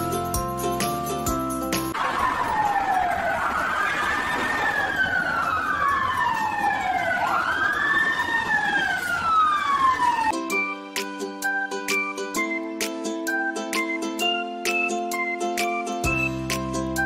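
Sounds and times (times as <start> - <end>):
music: 0.0 - 2.0, 10.3 - 17.0
fire engine sirens wailing: 1.9 - 10.5.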